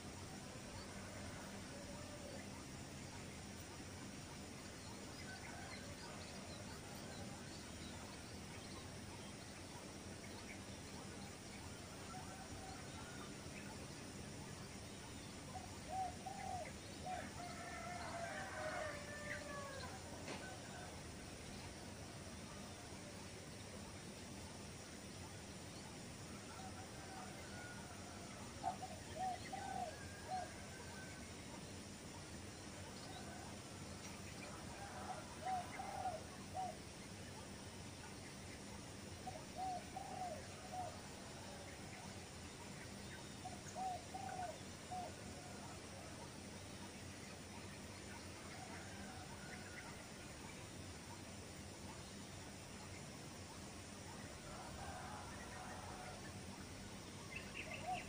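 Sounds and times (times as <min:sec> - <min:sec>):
open-air background hiss: 0:00.0 - 0:58.0
outdoor background noise: 0:00.0 - 0:58.0.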